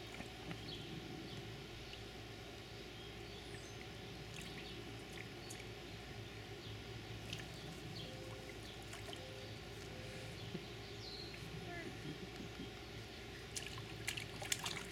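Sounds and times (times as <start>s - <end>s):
water splashing in paddling pool: 13.4s - 14.9s.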